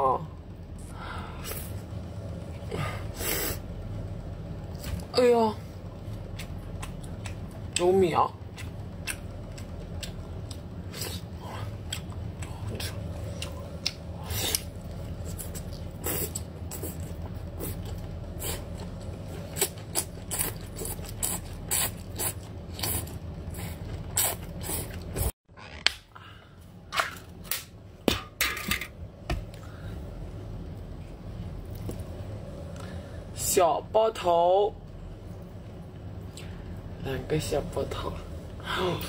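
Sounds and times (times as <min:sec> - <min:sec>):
steady low hum: 0:00.0 - 0:39.0
wet chewing and sucking: 0:08.5 - 0:25.7.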